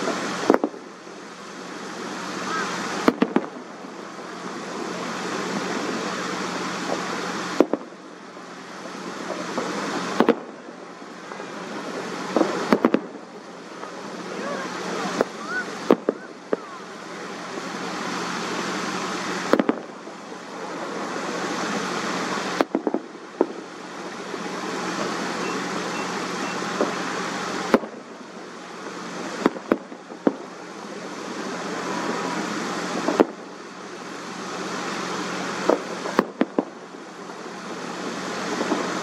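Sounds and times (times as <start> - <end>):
distant fireworks bangs: 0.0 - 39.0
road traffic passing: 0.0 - 39.0.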